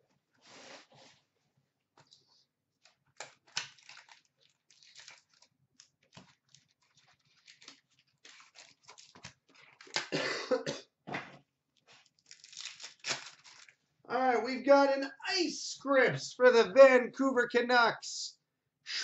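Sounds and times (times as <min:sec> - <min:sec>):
card wrapper rustling and crinkling: 0:02.8 - 0:10.1, 0:11.8 - 0:13.9.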